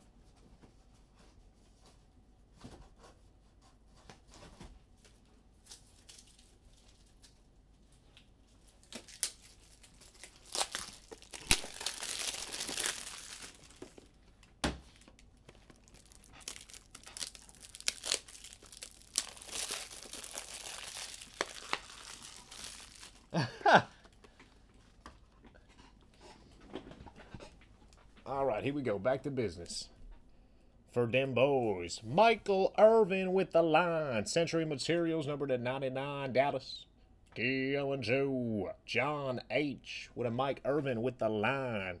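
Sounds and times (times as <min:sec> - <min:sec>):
plastic packaging crinkling: 0:05.6 - 0:07.4, 0:08.2 - 0:24.3.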